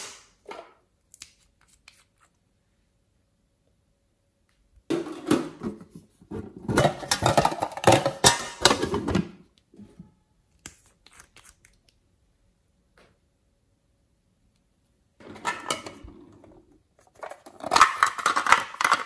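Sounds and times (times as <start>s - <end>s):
metal tin scraping and clatter: 6.4s - 9.2s, 15.2s - 19.0s.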